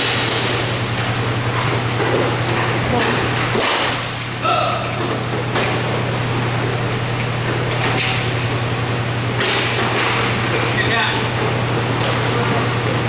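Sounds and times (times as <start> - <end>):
sharp knocks of sticks and puck: 3.5 - 4.1, 9.4 - 10.2.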